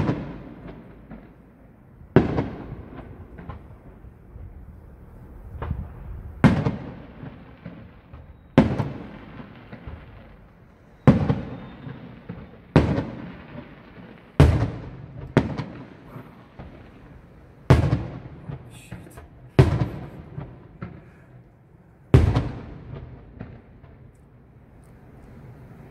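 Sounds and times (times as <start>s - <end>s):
firework crackles: 0.0s - 25.9s
firework shells bursting: 5.6s - 24.3s.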